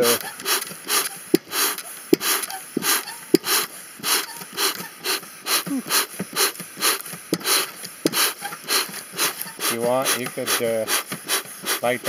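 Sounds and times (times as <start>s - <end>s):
bellows squeaks: 0.0s - 6.1s, 7.4s - 10.2s
bellows puffing air: 0.0s - 12.0s.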